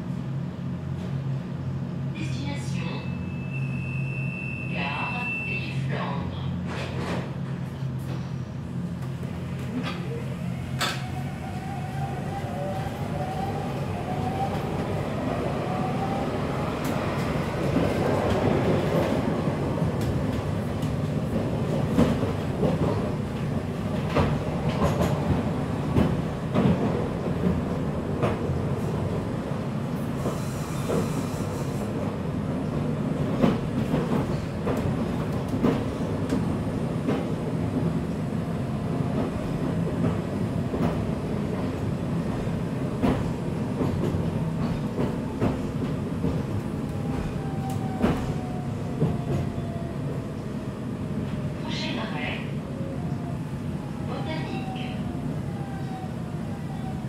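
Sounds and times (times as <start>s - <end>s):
rail joint clacks: 42.3s - 49.5s.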